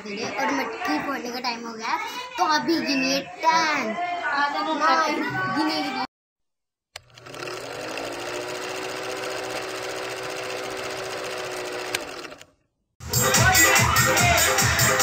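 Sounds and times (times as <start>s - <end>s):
film projector clatter and whir: 7.0s - 12.6s.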